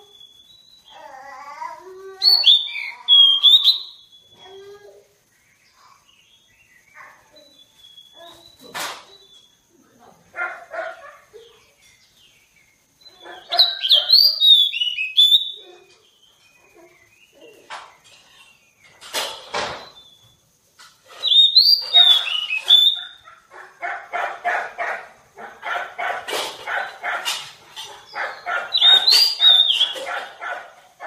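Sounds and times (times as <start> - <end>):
bird singing whistled notes: 0.0 - 1.0, 2.2 - 4.5, 5.4 - 9.6, 11.8 - 17.4, 21.1 - 23.2, 28.3 - 30.0
bird harsh repeated notes: 21.0 - 23.2, 26.5 - 30.4.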